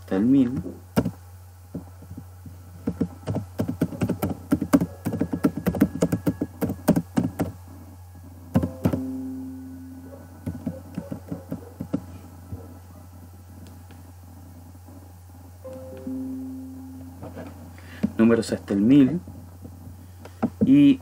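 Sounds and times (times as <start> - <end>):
steady low hum: 0.0 - 21.0
short ringing tone: 8.6 - 10.4, 15.6 - 18.0.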